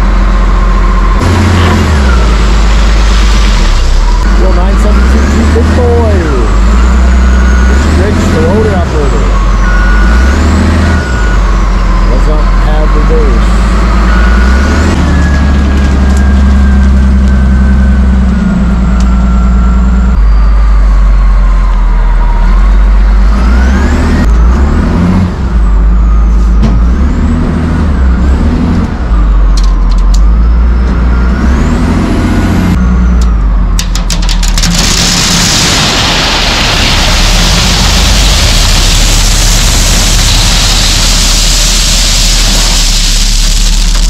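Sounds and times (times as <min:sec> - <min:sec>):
wheel loader diesel engine: 0:00.0 - 0:44.0
stones clattering into steel bed: 0:33.8 - 0:35.2.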